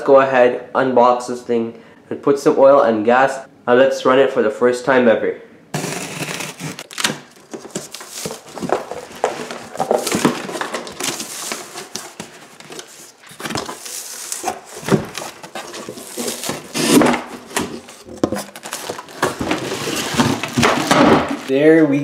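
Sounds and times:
cardboard scraping and rustling: 5.8 - 21.5.

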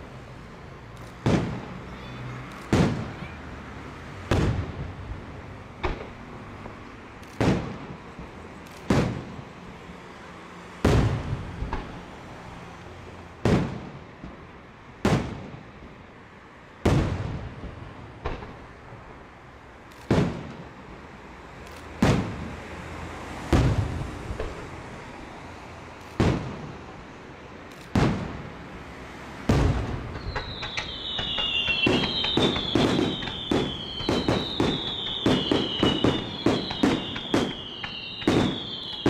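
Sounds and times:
firework bangs with echo: 1.0 - 3.4, 4.3 - 5.2, 5.8 - 9.5, 10.8 - 12.0, 13.4 - 14.4, 15.0 - 15.7, 16.8 - 18.8, 19.9 - 20.8, 21.7 - 22.6, 23.5 - 24.7, 26.0 - 26.8, 27.7 - 28.6, 29.4 - 39.0.

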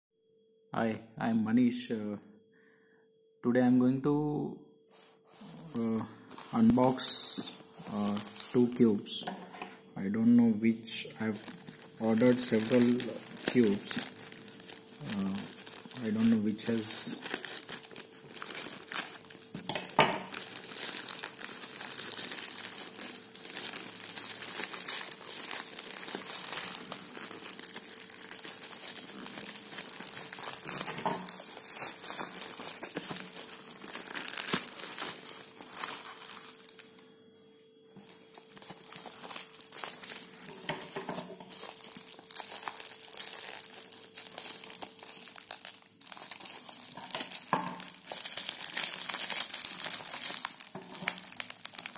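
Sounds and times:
plastic mailer and bubble wrap crinkling: 5.0 - 51.9.

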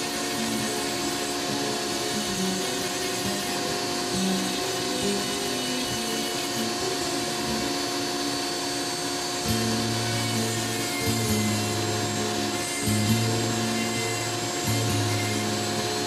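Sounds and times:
rotary tool grinding wood: 0.0 - 16.0
background music with low notes: 9.4 - 16.0.

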